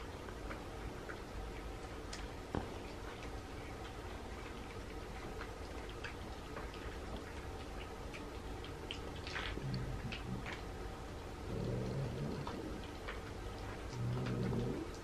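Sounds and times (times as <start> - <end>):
cats crunching food: 0.0 - 15.0
cat growling: 9.4 - 10.6, 11.4 - 13.0, 13.9 - 15.0.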